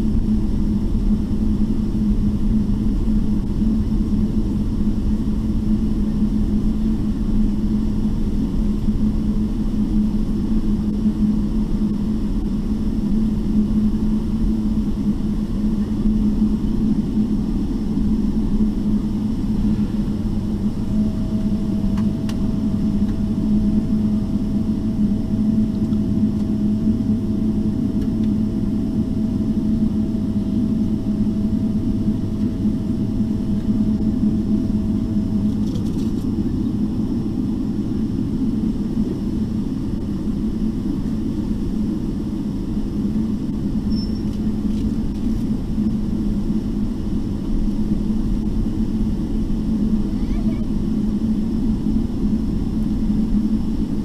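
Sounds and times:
aircraft cabin rumble: 0.0s - 54.0s
faint steady tone: 36.4s - 44.8s.

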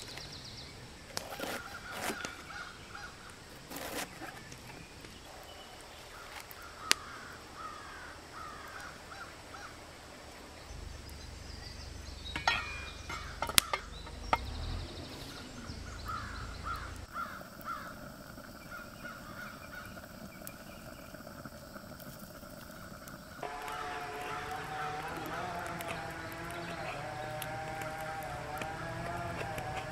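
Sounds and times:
birds calling: 0.0s - 29.9s
metal lid clinking on pot: 12.4s - 14.2s.

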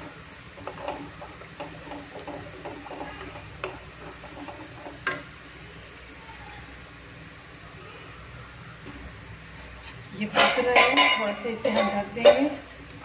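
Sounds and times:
steady high-pitched hiss: 0.0s - 13.0s.

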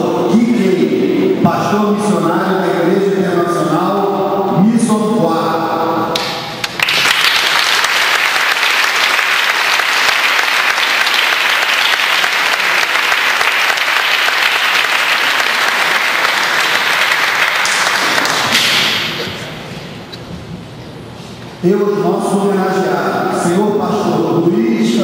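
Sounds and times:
audience applauding: 6.2s - 19.2s.

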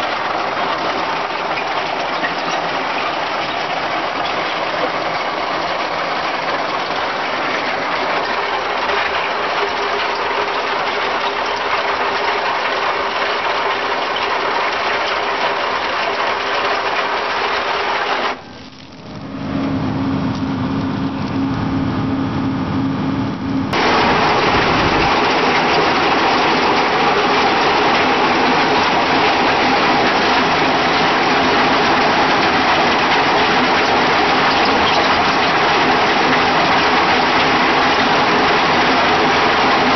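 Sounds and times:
stone crusher machine running: 0.0s - 18.6s, 23.7s - 39.9s
steady low hum: 18.4s - 28.7s.

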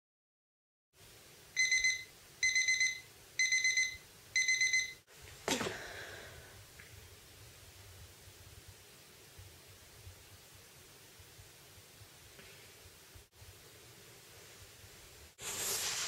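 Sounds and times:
alarm clock beeping: 1.6s - 5.0s.

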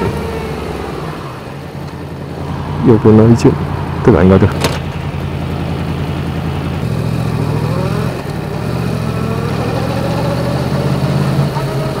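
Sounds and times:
motorcycle engine running at low revs: 3.8s - 12.0s.

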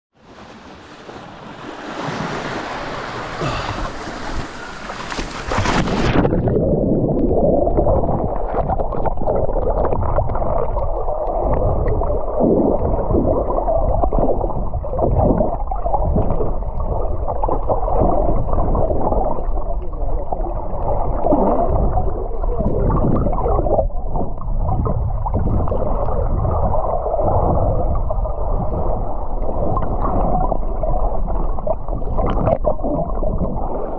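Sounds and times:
sea water sloshing and splashing: 0.2s - 33.9s
underwater rumble and gurgling: 0.2s - 33.9s.

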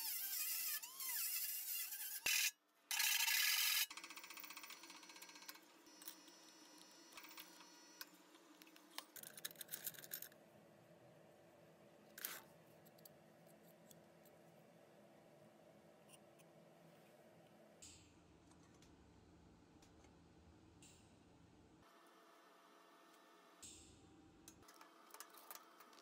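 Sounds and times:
rotary tool grinding steel: 0.0s - 6.4s
metal clicks and scrapes: 8.8s - 10.4s.

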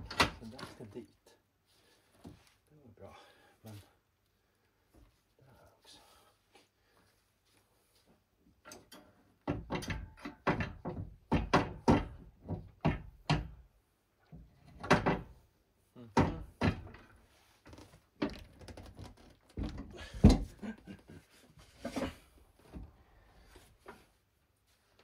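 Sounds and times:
metal parts and tools knocking: 8.6s - 13.6s.

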